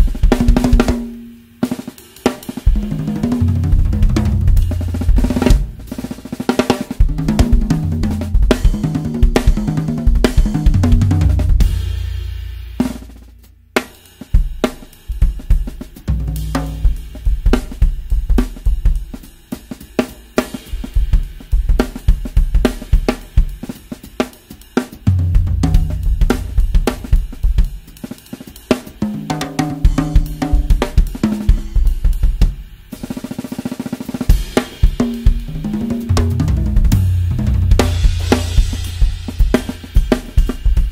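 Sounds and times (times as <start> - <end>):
cymbals: 0.0 - 40.9
bass drum: 2.7 - 6.4, 7.0 - 13.8, 14.4 - 19.2, 25.0 - 27.9, 34.3 - 40.9
hi-hat: 12.6 - 25.1.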